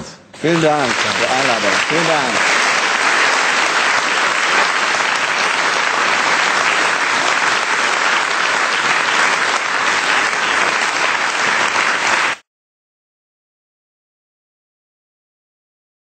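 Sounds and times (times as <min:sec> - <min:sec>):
audience applauding: 0:00.4 - 0:12.4.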